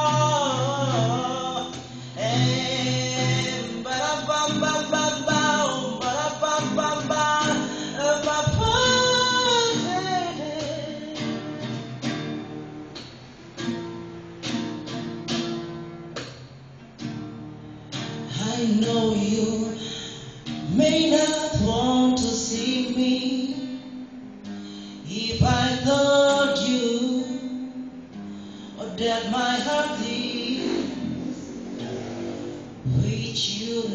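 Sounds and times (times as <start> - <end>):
man singing: 0.0 - 11.7, 18.3 - 24.0, 25.0 - 28.0, 28.7 - 31.5, 32.8 - 33.9
guitar playing: 0.0 - 33.9.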